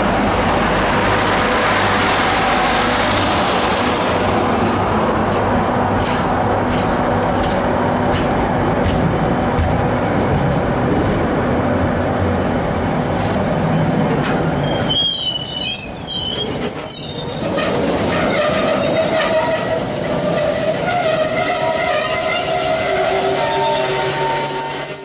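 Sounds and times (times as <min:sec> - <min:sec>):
train wheels rumbling on rails: 0:00.0 - 0:25.0
train wheels squealing: 0:14.6 - 0:25.0.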